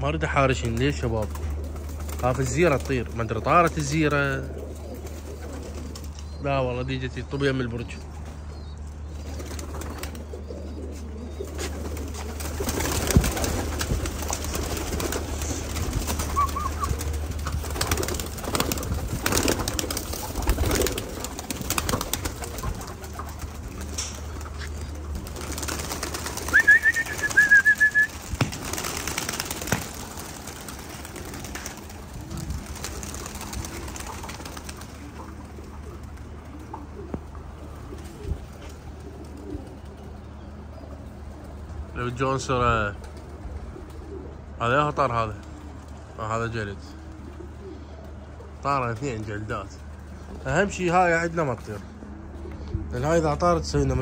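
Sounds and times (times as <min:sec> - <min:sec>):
pigeons cooing: 0:00.0 - 0:54.0
pigeons moving about: 0:00.4 - 0:06.4, 0:07.8 - 0:44.4
high warbling bird call: 0:14.4 - 0:18.8, 0:19.5 - 0:31.4.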